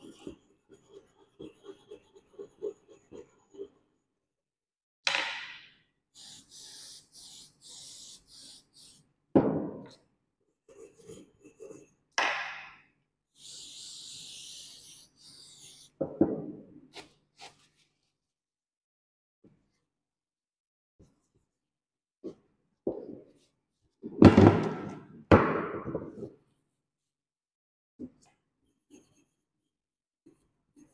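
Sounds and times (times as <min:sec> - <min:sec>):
loud knocks on bench: 0:09.4 - 0:09.9, 0:24.2 - 0:26.2.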